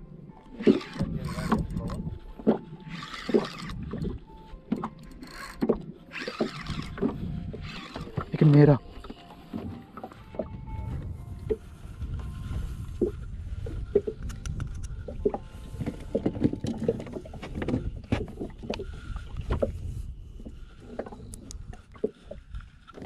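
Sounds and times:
water rumbling against hull: 0.0 - 23.0.

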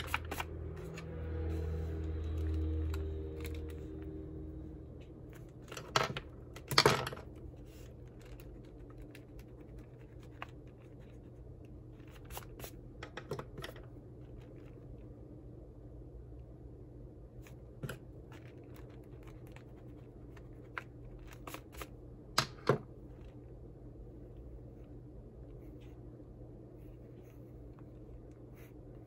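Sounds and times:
low hum: 0.0 - 29.0.

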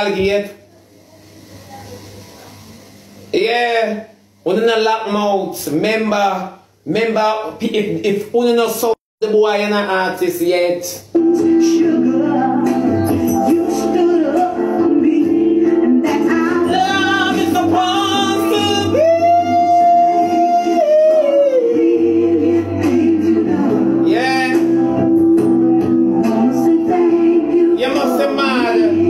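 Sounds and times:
man singing slow emotional song: 11.3 - 24.8, 26.2 - 29.0.

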